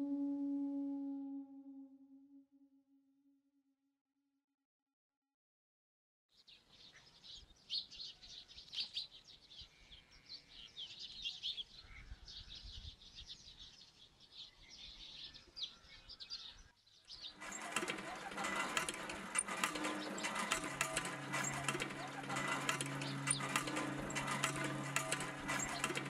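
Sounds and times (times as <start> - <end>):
small birds chirping: 6.4 - 17.4
hand water pump clanking and creaking: 17.4 - 26.0.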